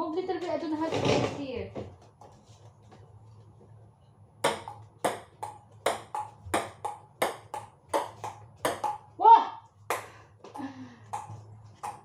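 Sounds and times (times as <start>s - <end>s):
ping-pong ball clicking: 4.4s - 9.1s, 11.1s - 12.0s.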